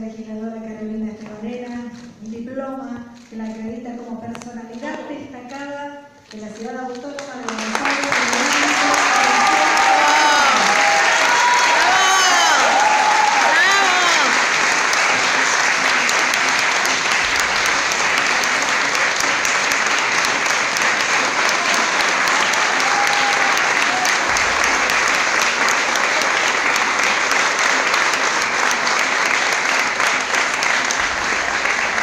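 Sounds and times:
audience applauding: 7.1 - 32.0.

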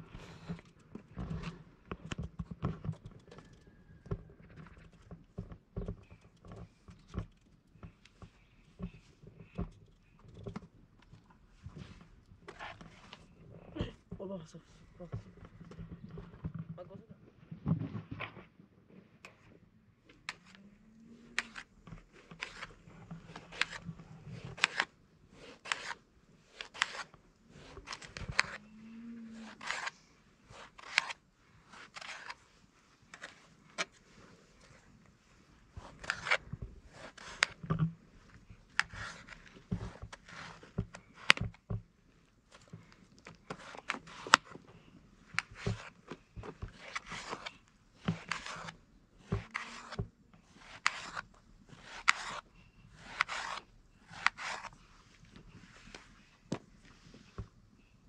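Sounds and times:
short scrapes and clicks: 29.3 - 32.4.

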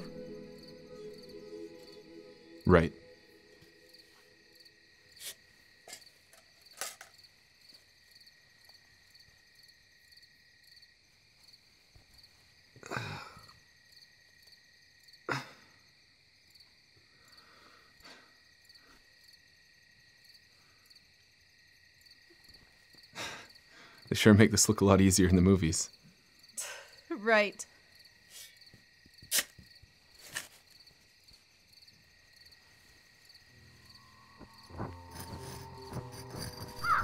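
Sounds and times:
crickets chirping: 0.0 - 37.0.

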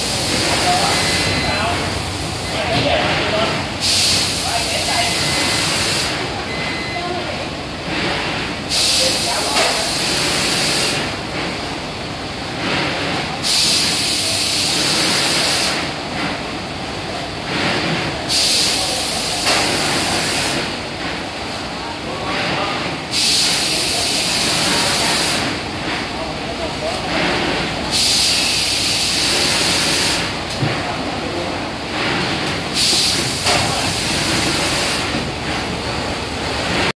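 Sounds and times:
packing machinery running: 0.0 - 36.9
compressed air hissing: 3.8 - 4.7, 8.7 - 11.1, 13.4 - 15.9, 18.3 - 20.7, 23.1 - 25.6, 27.9 - 30.3, 32.7 - 35.1.

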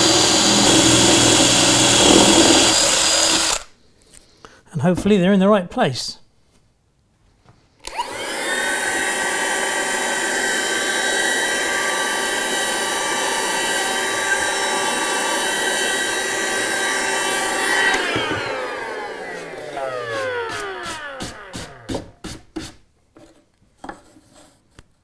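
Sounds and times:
handheld vacuum cleaner whining: 0.0 - 3.7, 7.8 - 22.2.

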